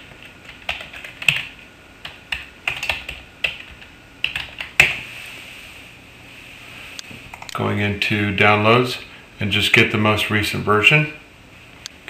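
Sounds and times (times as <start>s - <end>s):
typing on computer keyboard: 0.0s - 5.0s.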